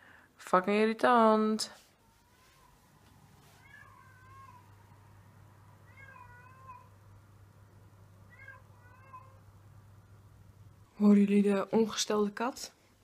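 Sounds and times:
cat meowing: 2.0 - 2.9, 3.5 - 4.8, 5.8 - 7.0, 8.3 - 9.4.

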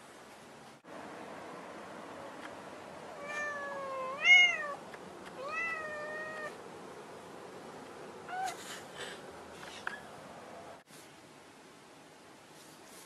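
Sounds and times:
cat meowing: 3.2 - 4.8, 5.4 - 6.6.

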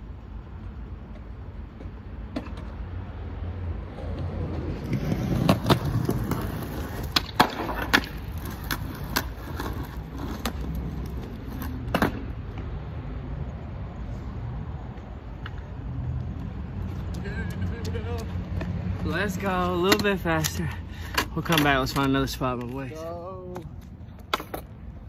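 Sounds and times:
skateboard wheels rumbling on concrete: 0.1 - 13.6, 14.4 - 25.0
sharp skateboard clacks: 4.2 - 12.6, 19.7 - 22.8, 23.5 - 24.8.

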